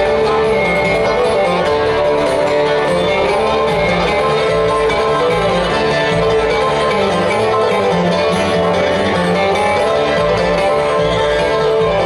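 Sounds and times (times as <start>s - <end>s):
acoustic guitar picked fast: 0.0s - 12.0s
bluegrass band playing: 0.0s - 12.0s.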